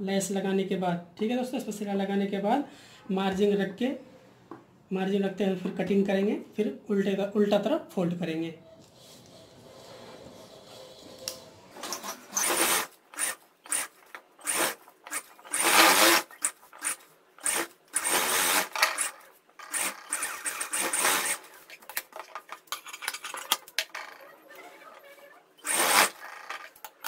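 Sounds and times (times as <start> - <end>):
sewing machine stitching: 9.0 - 22.4, 23.7 - 27.0.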